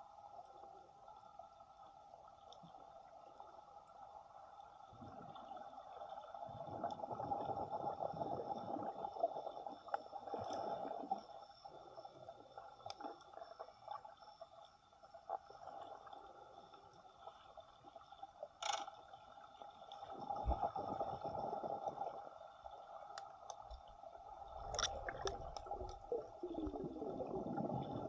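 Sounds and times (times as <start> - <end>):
water sloshing underwater: 0.0 - 28.0
faint clicks: 18.6 - 19.1, 23.0 - 23.9, 24.6 - 26.0.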